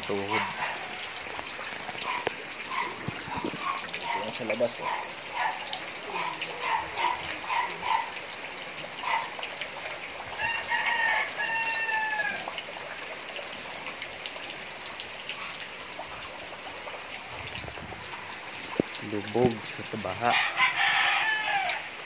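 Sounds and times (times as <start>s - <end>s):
rooster crowing: 10.4s - 12.6s, 20.2s - 22.0s.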